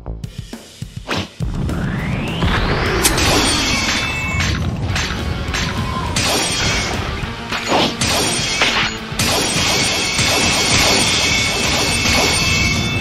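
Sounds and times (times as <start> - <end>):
background music: 0.0 - 13.0
axe and sword clashing: 3.5 - 13.0.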